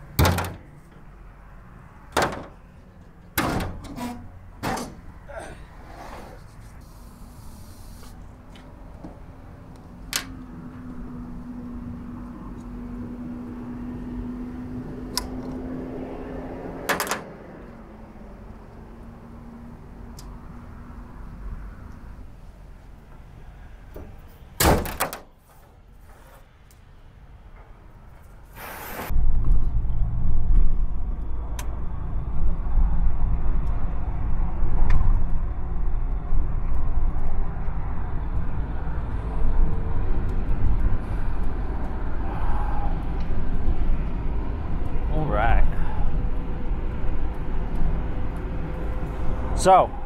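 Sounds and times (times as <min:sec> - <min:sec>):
road noise: 0:00.0 - 0:50.0
car engine drone: 0:06.4 - 0:24.0, 0:29.1 - 0:50.0
sharp ticks: 0:46.1 - 0:49.1.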